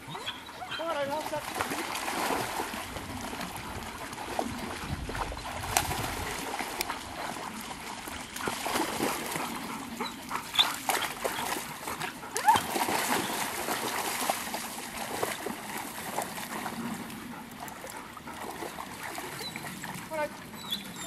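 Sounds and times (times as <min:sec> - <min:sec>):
water splashing: 0:00.0 - 0:21.0
high dog whines: 0:00.1 - 0:00.9, 0:12.4 - 0:12.7.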